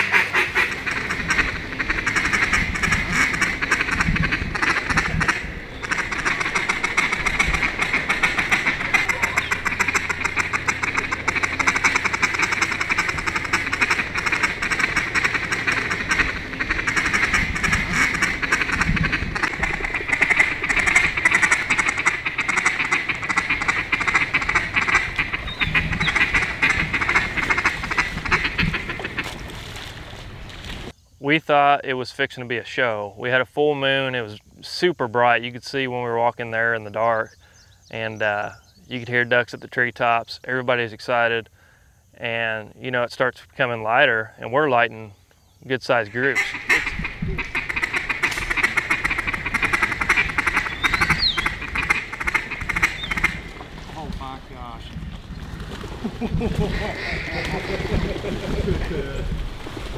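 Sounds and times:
many ducks quacking: 0.0s - 30.0s, 45.9s - 55.0s, 55.6s - 59.9s.

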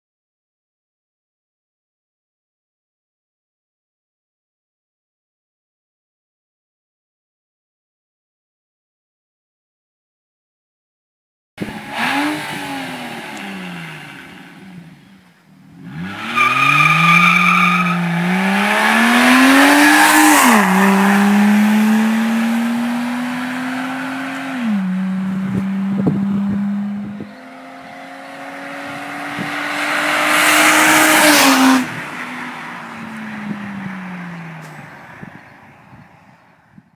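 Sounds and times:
loud car engine accelerating: 11.6s - 15.1s, 15.7s - 35.3s.

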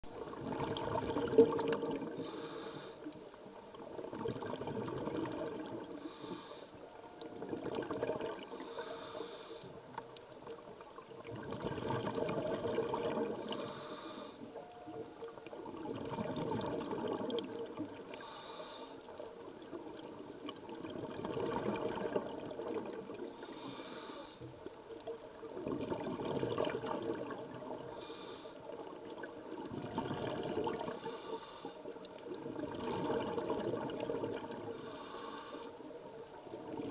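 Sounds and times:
exhaled bubbles rushing: 0.1s - 2.2s, 4.0s - 5.9s, 7.4s - 8.5s, 11.2s - 13.6s, 15.7s - 18.0s, 20.4s - 23.2s, 25.3s - 27.8s, 29.1s - 31.0s, 32.3s - 34.7s
regulator inhale hiss: 2.1s - 3.3s, 5.9s - 6.8s, 8.5s - 10.0s, 13.4s - 14.6s, 18.1s - 19.2s, 23.2s - 24.6s, 27.8s - 28.8s, 30.8s - 32.0s, 34.7s - 35.9s.

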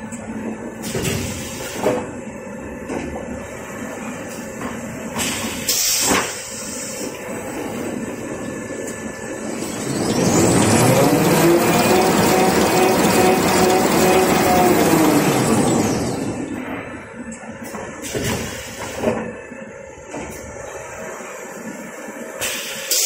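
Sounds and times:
machine rumbling and rattling: 7.1s - 21.1s
rising machine whine: 7.3s - 17.5s.

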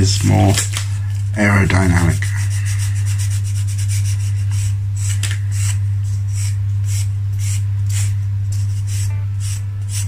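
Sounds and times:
steady low hum: 0.0s - 10.0s
sanding stick rasping on wood: 2.2s - 10.0s.

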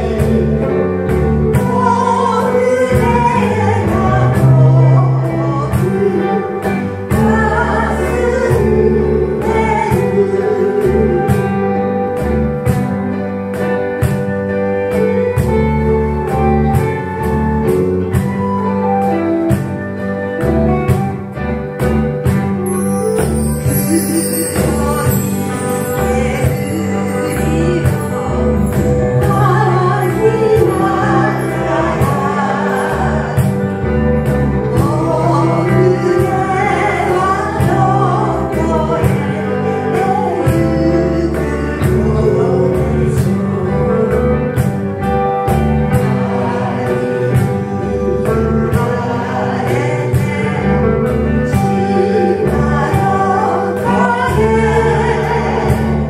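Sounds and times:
person singing: 0.0s - 21.4s, 22.2s - 56.0s
live band playing gentle song: 0.0s - 56.0s
percussion strokes: 22.2s - 40.2s.

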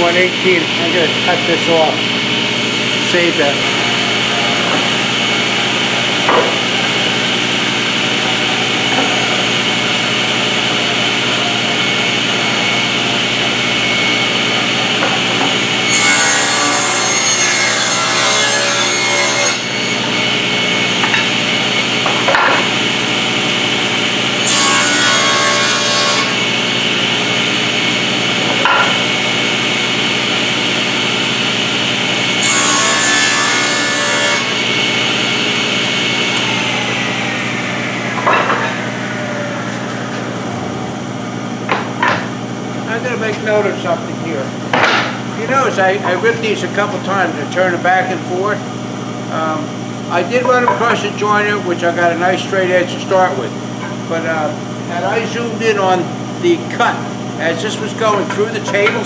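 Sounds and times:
table saw running: 0.0s - 59.0s
boards knocking: 6.2s - 6.8s
saw ripping boards: 14.9s - 20.1s, 24.4s - 27.1s, 32.3s - 36.3s.

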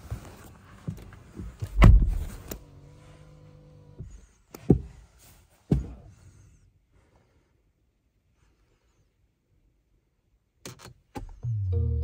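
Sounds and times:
car door shutting: 1.6s - 2.8s.

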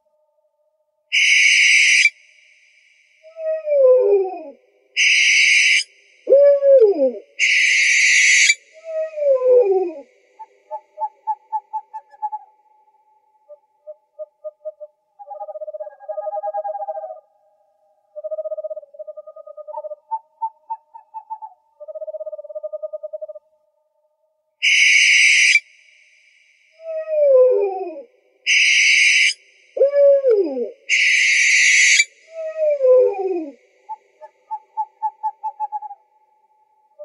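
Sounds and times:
owl hissing screech: 1.1s - 2.1s, 5.0s - 5.9s, 7.4s - 8.6s, 24.6s - 25.6s, 28.5s - 29.4s, 30.9s - 32.1s
rapid owl trills: 1.1s - 2.2s, 3.2s - 17.2s, 18.1s - 23.4s, 24.6s - 25.7s, 26.8s - 36.1s.

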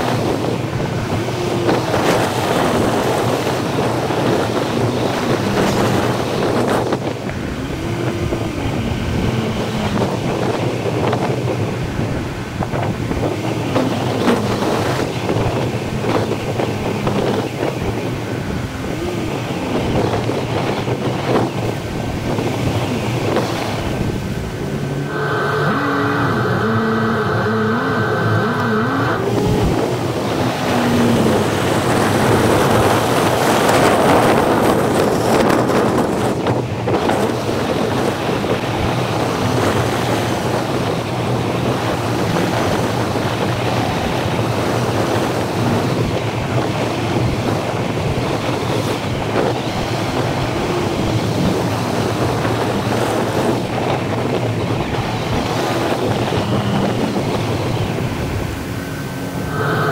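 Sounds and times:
low engine hum: 0.0s - 59.9s
wind rushing over microphone: 0.0s - 59.9s.

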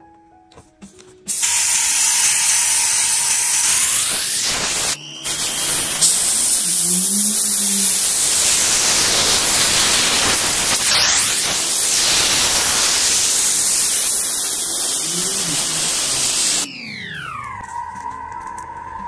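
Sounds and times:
loud steady hiss: 1.3s - 16.7s
smoothly falling tone: 16.7s - 19.0s.

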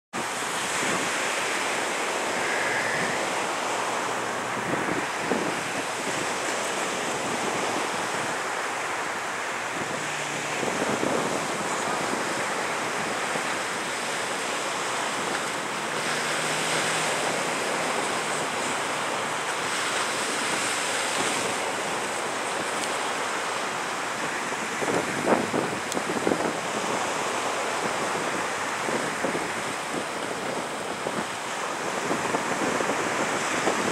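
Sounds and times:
waves on the shore: 0.1s - 33.9s
wind noise on microphone: 0.1s - 33.9s.

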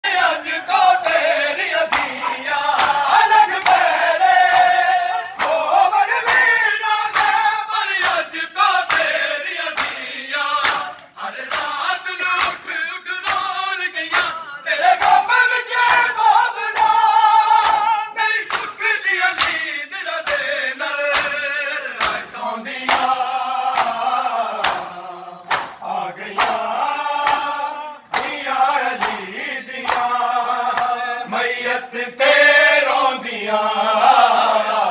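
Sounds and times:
men chanting in unison: 0.0s - 34.9s
hands beating chests: 1.9s - 7.4s, 24.6s - 26.6s.

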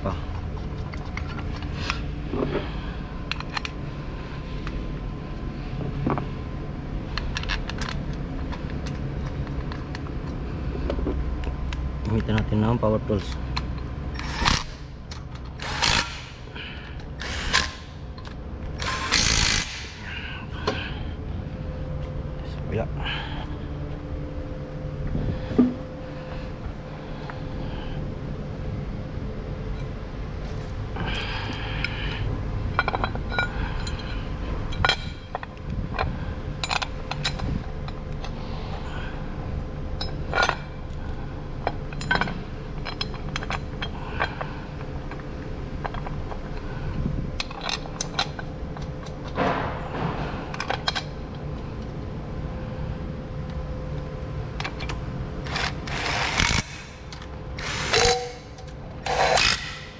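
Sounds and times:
steady mechanical hum: 0.0s - 59.9s
metallic clinks of tools and bolts: 41.6s - 44.4s.

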